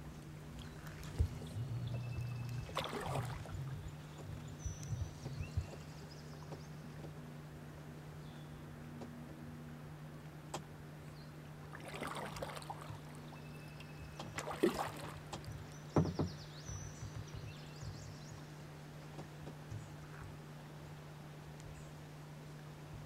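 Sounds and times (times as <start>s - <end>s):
paddle splashes: 0.0s - 7.2s, 11.6s - 20.7s
paddle knocks against hull: 0.8s - 7.2s, 14.2s - 18.3s.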